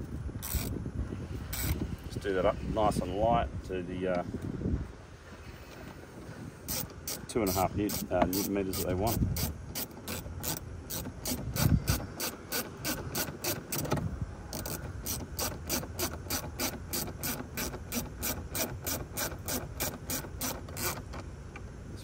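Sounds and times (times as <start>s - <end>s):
ratcheting screwdriver clicking: 0.4s - 0.7s, 6.7s - 21.2s.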